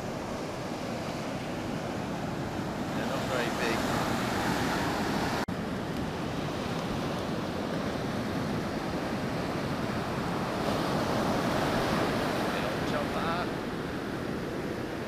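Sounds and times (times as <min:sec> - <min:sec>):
ocean surf breaking on beach: 0:00.0 - 0:15.0.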